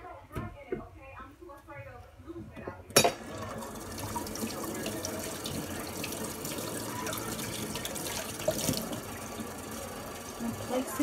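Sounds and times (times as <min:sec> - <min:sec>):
tap running into sink: 0:03.0 - 0:10.7.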